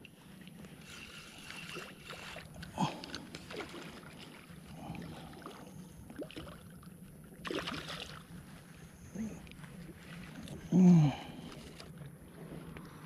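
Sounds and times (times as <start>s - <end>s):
faint water sloshing: 0.0s - 13.0s
small splashes: 0.8s - 6.8s, 7.4s - 8.3s.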